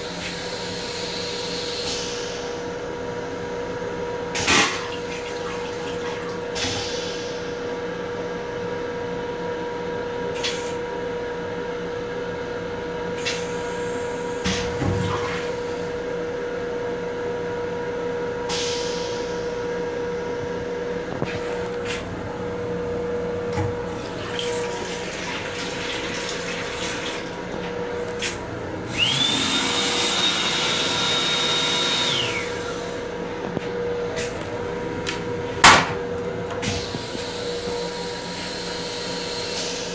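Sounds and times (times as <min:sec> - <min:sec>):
constant hum: 0:14.4 - 0:39.9
loud high whine: 0:27.6 - 0:39.9.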